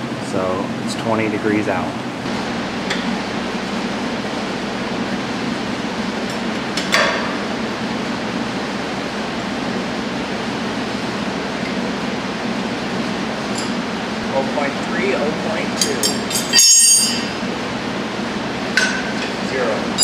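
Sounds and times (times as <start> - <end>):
workshop background noise: 11.5 - 20.0.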